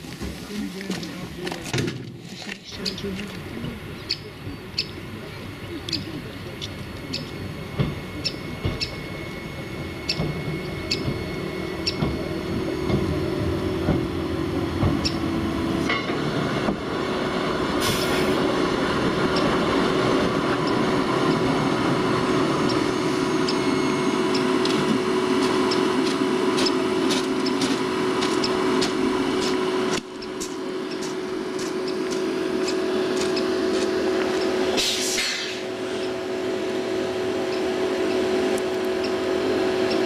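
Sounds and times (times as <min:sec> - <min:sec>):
brief hiss: 0:17.8 - 0:18.4, 0:34.8 - 0:35.6
electric motor whine: 0:18.5 - 0:34.8.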